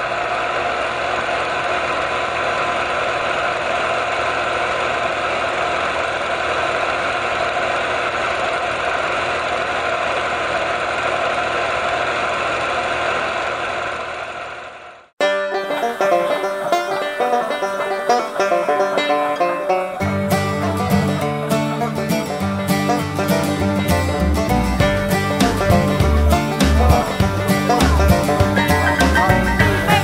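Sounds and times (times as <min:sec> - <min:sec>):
film projector running: 0:00.0 - 0:15.1.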